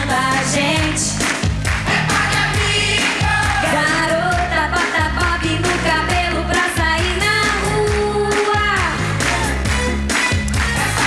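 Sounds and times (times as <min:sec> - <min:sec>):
woman singing pop song: 0:00.0 - 0:01.2, 0:02.5 - 0:09.5
drum and bass beat: 0:00.0 - 0:11.0.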